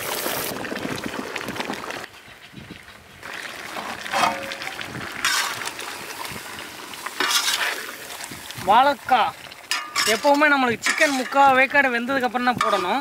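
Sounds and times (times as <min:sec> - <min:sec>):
curry simmering: 0:00.1 - 0:13.0
ladle scraping pan: 0:03.4 - 0:06.3, 0:07.1 - 0:08.2, 0:09.6 - 0:11.8, 0:12.5 - 0:13.0.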